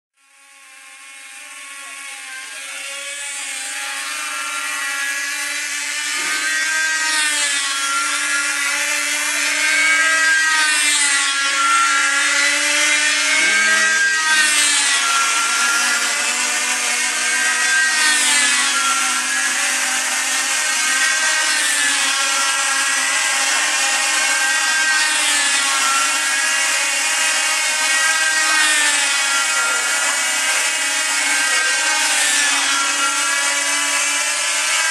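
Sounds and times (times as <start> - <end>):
model aircraft engines buzzing: 0.2 - 34.9.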